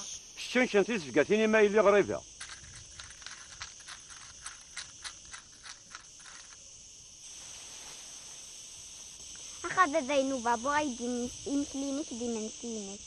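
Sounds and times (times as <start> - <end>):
faint steady hiss: 0.0 - 13.0
necklace beads rattling: 2.3 - 6.6.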